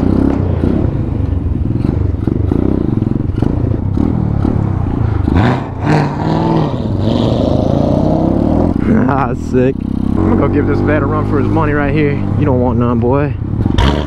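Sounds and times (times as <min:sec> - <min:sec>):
mini bike engine revving: 0:13.6 - 0:14.0.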